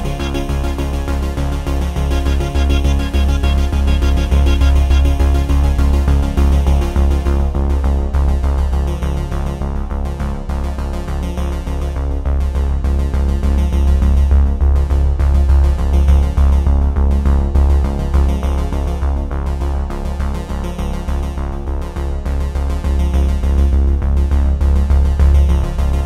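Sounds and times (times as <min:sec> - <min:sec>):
electronic synthesizer music: 0:00.0 - 0:07.6.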